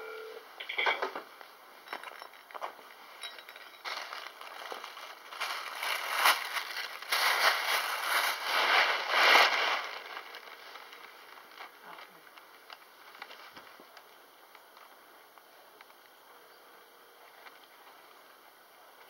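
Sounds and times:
paper gift bag rustling: 0:03.8 - 0:13.8.

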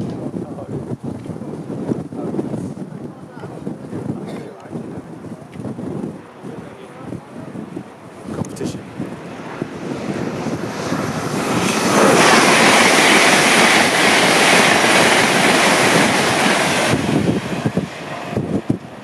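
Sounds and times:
high-speed train passing: 0:04.7 - 0:19.0.

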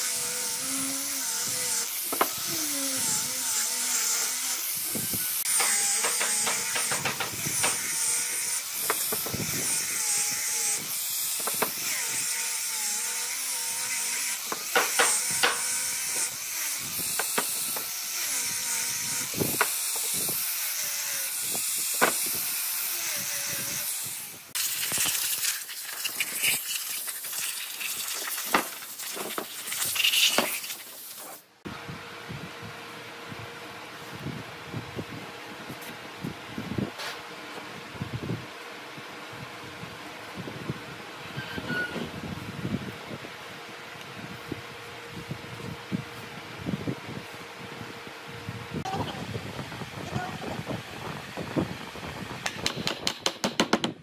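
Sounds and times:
power tool grinding wood: 0:00.0 - 0:25.0.

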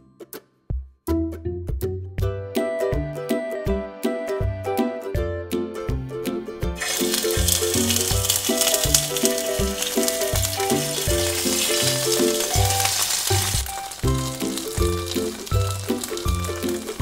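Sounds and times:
background music with beat: 0:00.0 - 0:17.0
food sizzling in hot oil: 0:06.8 - 0:17.0.

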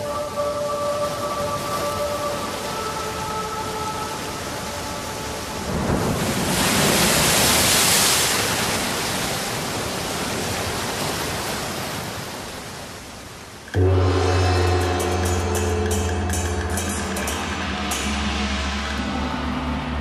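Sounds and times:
even rushing noise: 0:13.8 - 0:20.0.

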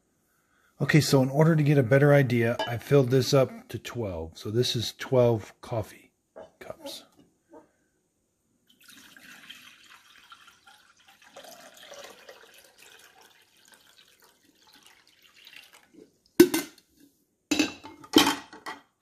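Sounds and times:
water pouring into glass: 0:08.7 - 0:16.4.

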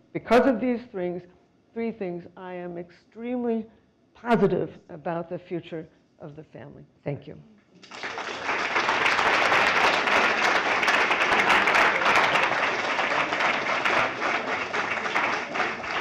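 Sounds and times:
audience applauding: 0:07.8 - 0:16.0.

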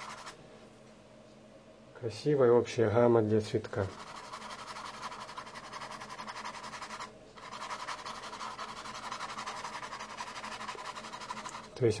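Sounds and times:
paintbrush scratching on canvas: 0:00.0 - 0:00.4, 0:03.8 - 0:11.8.

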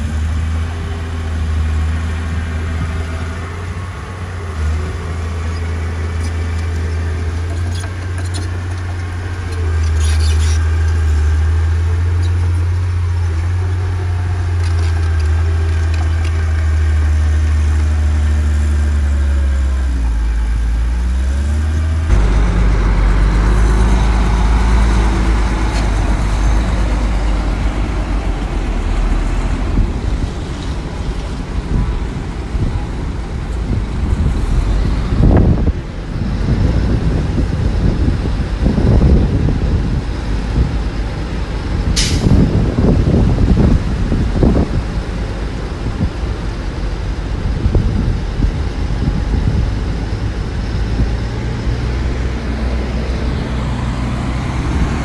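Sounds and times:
heavy diesel engines running: 0:00.0 - 0:55.0.

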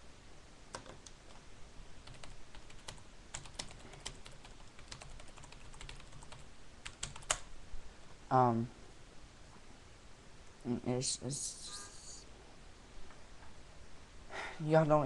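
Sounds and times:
keyboard typing clicks: 0:00.7 - 0:01.4, 0:02.0 - 0:07.5.

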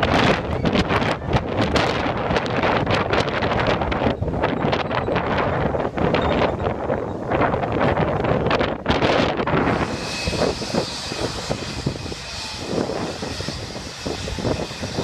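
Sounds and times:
wind buffeting microphone: 0:00.0 - 0:15.0
jet engines whining: 0:09.4 - 0:15.0.

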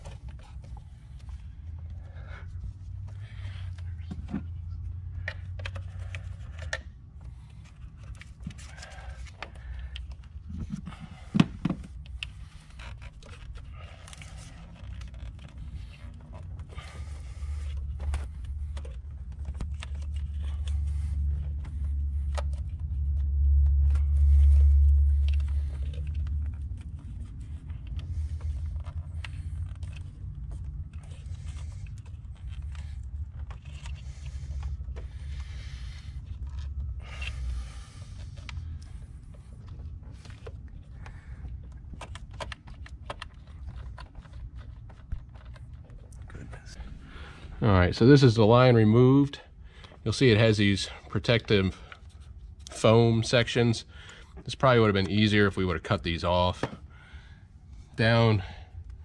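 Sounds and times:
low rumble: 0:13.6 - 0:42.0.

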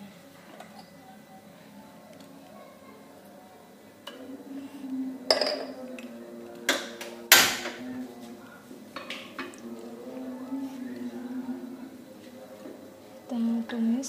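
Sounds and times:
kitchenware knocking and clinking: 0:05.3 - 0:05.8.

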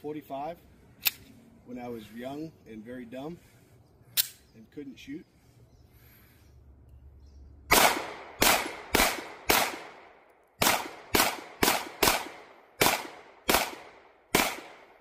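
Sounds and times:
pistol shots: 0:07.7 - 0:15.0.

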